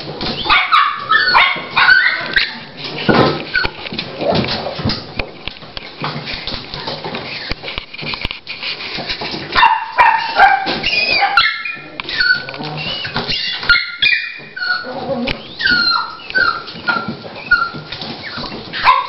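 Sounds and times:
dog whimpering: 1.1 - 2.8, 10.6 - 18.9.

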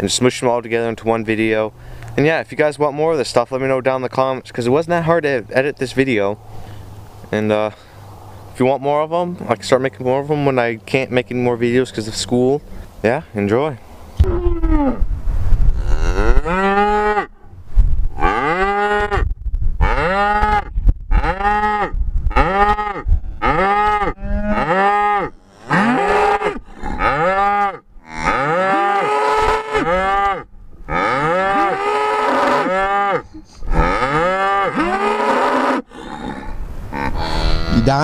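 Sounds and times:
cattle mooing: 15.7 - 17.4, 18.2 - 38.0.

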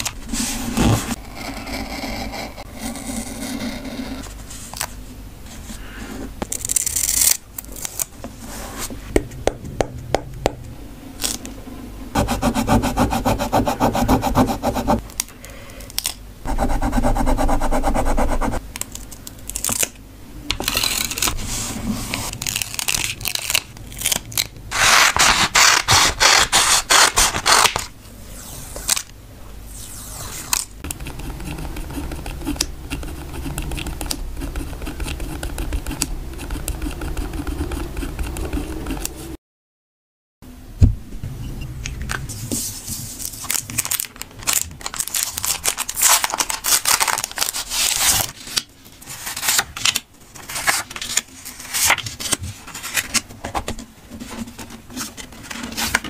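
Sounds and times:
tape peeled from roll: 6.5 - 8.9, 20.6 - 29.1, 42.5 - 53.3
pen writing on paper: 12.2 - 15.0, 30.9 - 39.2.

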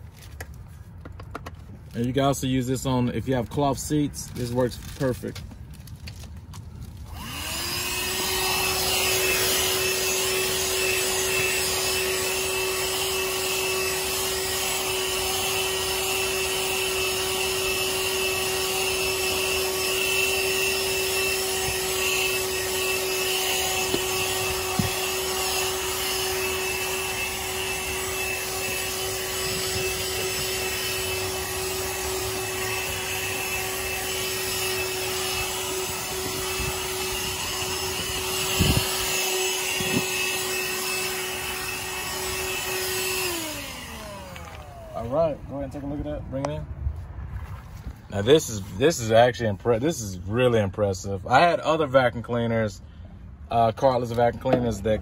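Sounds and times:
handheld vacuum motor whine: 3.5 - 46.0.

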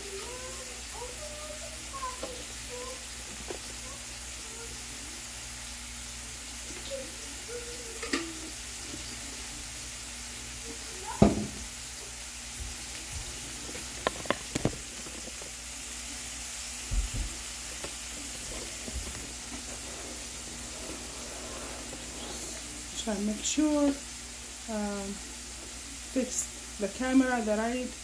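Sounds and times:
food sizzling in a frying pan: 0.0 - 28.0
soft thumps: 16.8 - 17.4.

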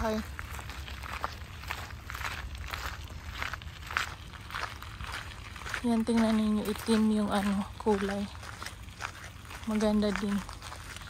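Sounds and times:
footsteps on a path: 0.0 - 11.0
steady low rumble: 0.0 - 11.0.

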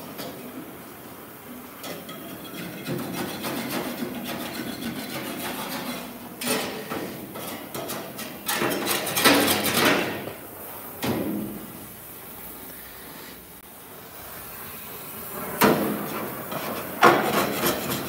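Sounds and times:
hands rubbing metal panel: 2.4 - 6.2, 15.7 - 18.0.

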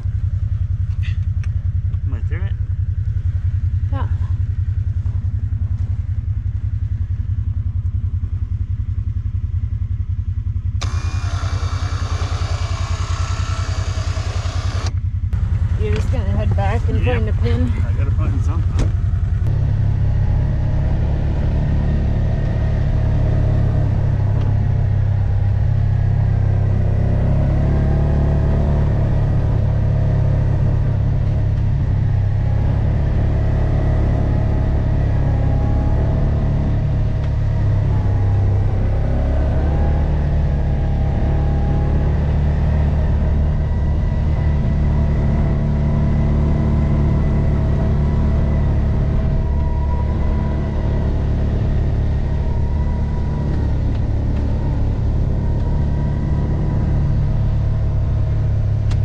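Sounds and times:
utility vehicle engine running: 0.0 - 59.0
plow pushing snow: 10.8 - 15.0.

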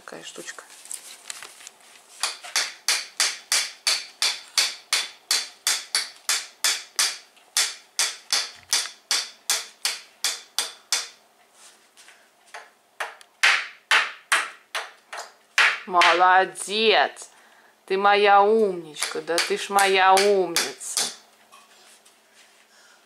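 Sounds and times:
small hammer tapping on wall: 12.5 - 16.2.

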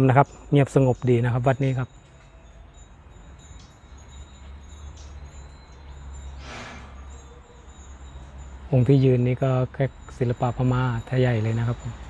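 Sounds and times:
faint high tinkles: 0.0 - 12.0
brief hiss: 6.4 - 7.0.

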